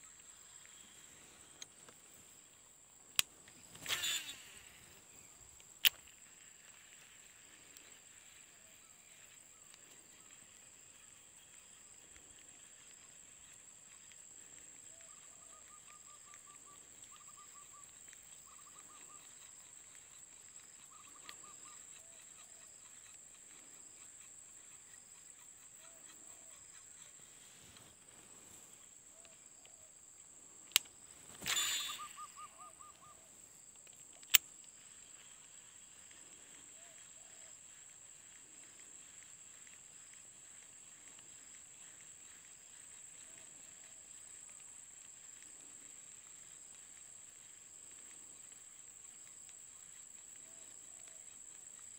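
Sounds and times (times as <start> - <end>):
faint trills: 3.6 - 5.4, 31.4 - 33.4
fishing line paying out: 3.7 - 5.0, 31.4 - 33.0.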